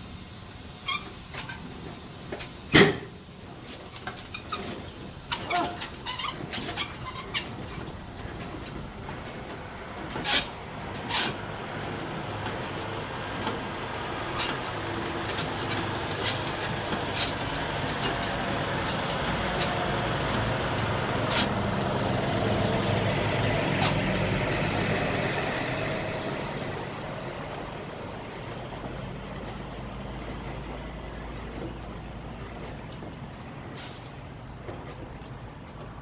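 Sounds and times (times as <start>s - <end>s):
truck engine rumbling: 0.0s - 36.0s
hand crank clicking: 12.1s - 36.0s.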